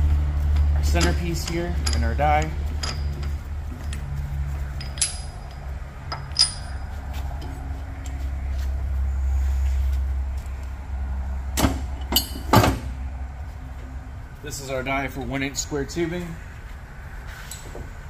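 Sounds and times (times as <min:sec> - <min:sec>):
steady low hum: 0:00.0 - 0:18.0
loud metal clanks: 0:04.7 - 0:07.6, 0:11.5 - 0:13.0
light ringing metal clinks: 0:04.7 - 0:08.2.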